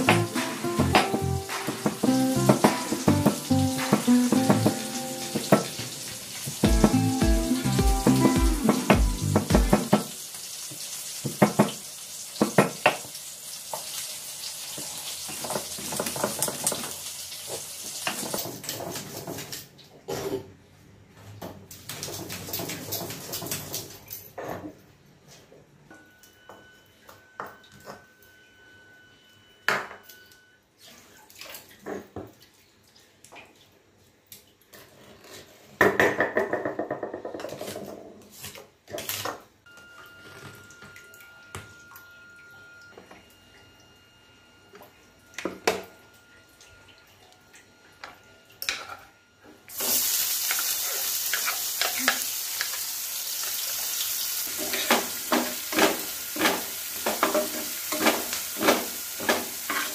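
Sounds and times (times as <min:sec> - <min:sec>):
utensils and dishes clinking: 0:00.0 - 0:10.1, 0:54.5 - 0:59.9
food sizzling in a wok: 0:00.0 - 0:18.6, 0:49.7 - 0:59.9
running water: 0:00.0 - 0:19.6.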